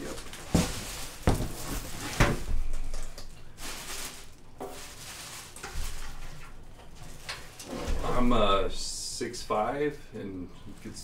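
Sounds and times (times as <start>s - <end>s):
plastic wrapping rustling: 0.0s - 8.4s.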